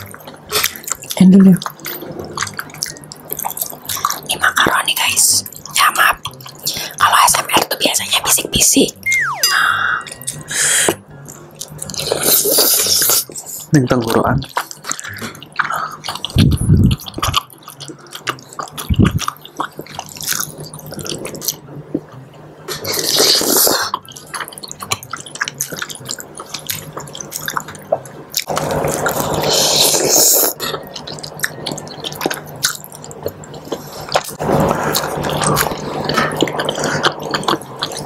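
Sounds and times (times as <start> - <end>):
people chewing: 0.0 - 8.2, 9.1 - 38.0
slurping noodles: 11.9 - 13.7, 22.7 - 24.0, 28.4 - 30.6.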